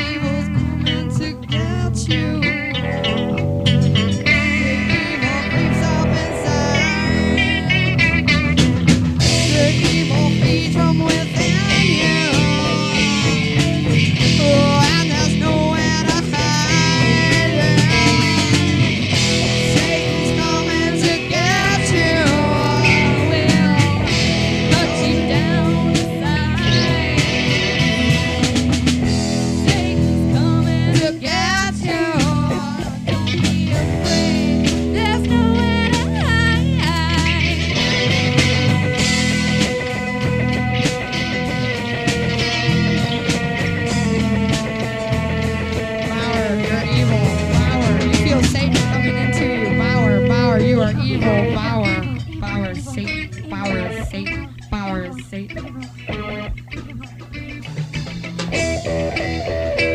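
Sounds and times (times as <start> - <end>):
guitar playing bending notes: 0.0 - 59.9
improvised rock jam: 0.0 - 59.9
steady bass line: 0.0 - 59.9.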